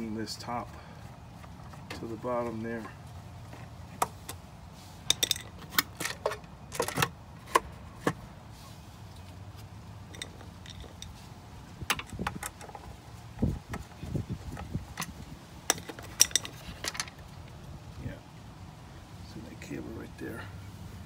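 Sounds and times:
small metallic clinks: 5.0 - 7.0, 10.1 - 11.2, 15.7 - 17.2.

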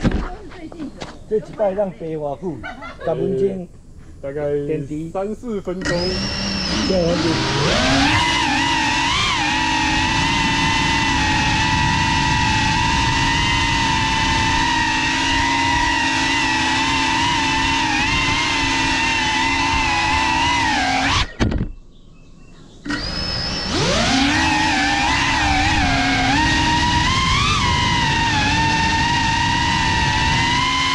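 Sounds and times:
drone motors whining: 5.7 - 21.8, 22.6 - 30.9.

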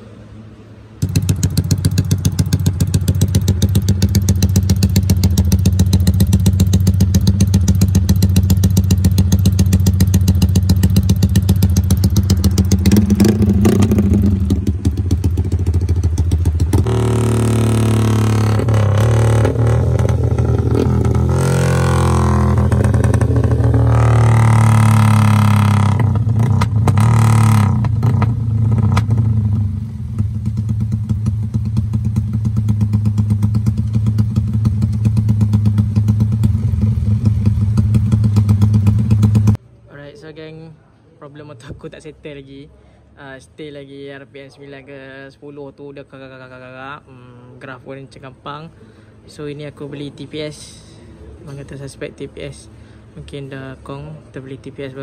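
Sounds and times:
motorcycle engine revving: 1.0 - 39.6.

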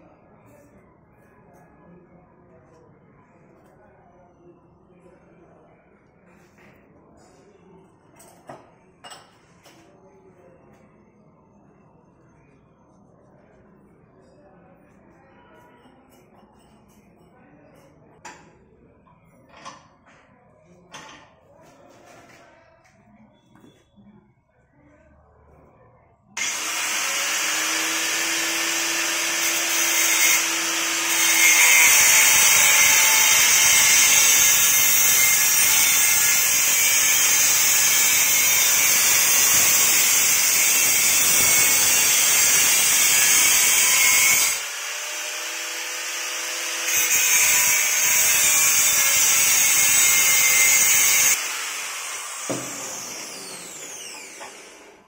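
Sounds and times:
angle grinder cutting metal: 26.4 - 55.0
grinder disc spinning down: 50.0 - 55.0.

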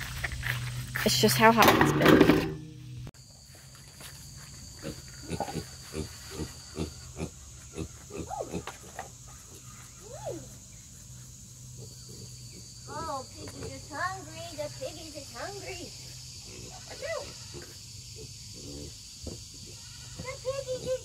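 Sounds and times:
pigs grunting: 4.8 - 9.6, 16.4 - 21.0.

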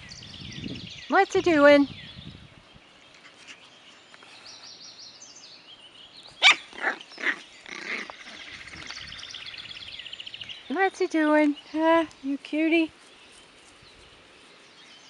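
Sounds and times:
puppy yapping: 6.4 - 7.4.

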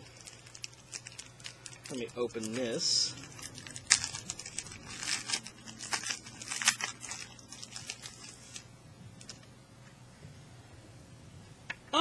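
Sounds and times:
plastic wrapping crinkling and tearing: 0.0 - 9.5.

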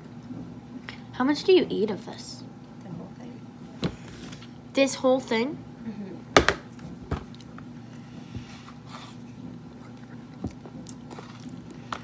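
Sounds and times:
steady low hum: 0.0 - 12.0.

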